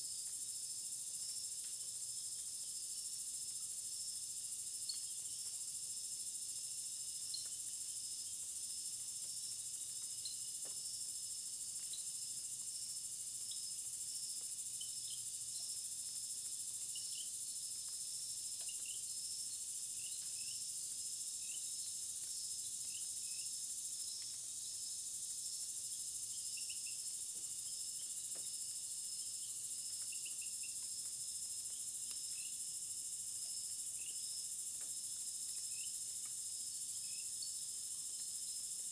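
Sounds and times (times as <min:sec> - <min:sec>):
faint insect chirps: 0:00.0 - 0:38.9
insect chorus trilling: 0:00.0 - 0:38.9.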